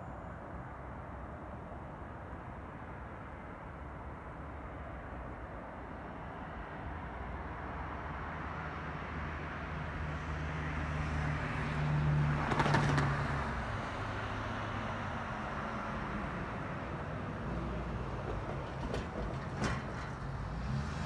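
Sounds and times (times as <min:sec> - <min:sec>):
vehicle passing: 0:19.6 - 0:21.0.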